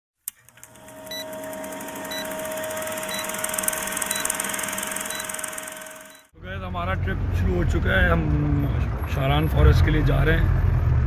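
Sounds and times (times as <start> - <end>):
film projector clatter: 0.3 - 6.3
steady hum: 0.5 - 6.3
short high beeps: 2.0 - 6.3.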